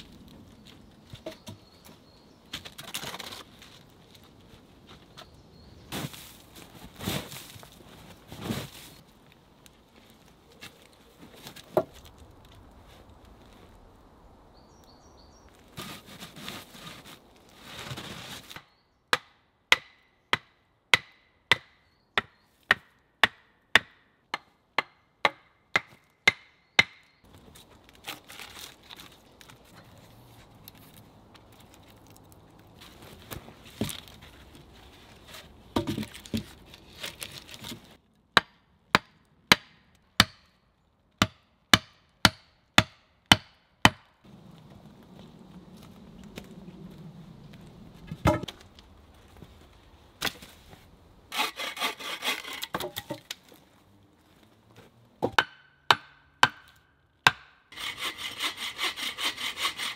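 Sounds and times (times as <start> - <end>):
rustling handling noise: 27.3 - 38.0.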